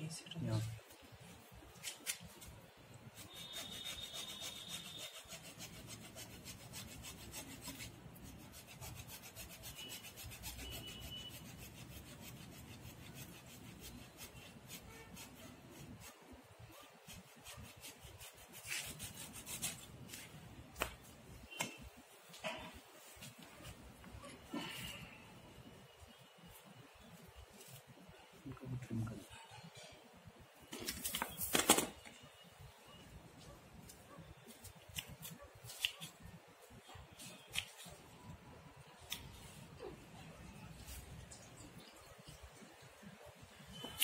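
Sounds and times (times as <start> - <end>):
hacksaw cutting through roots: 3.1 - 7.9.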